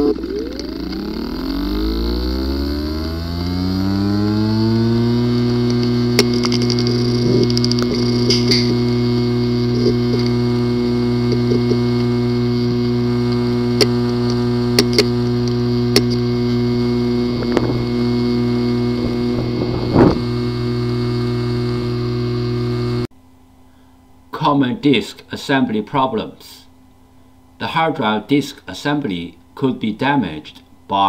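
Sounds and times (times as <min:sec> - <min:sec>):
hard drive clicking: 0:00.0 - 0:23.0
hard drive buzzing: 0:00.0 - 0:23.1.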